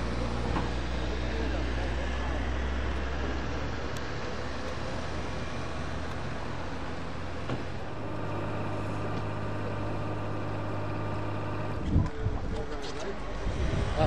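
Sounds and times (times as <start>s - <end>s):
jet engines running: 2.0s - 12.2s.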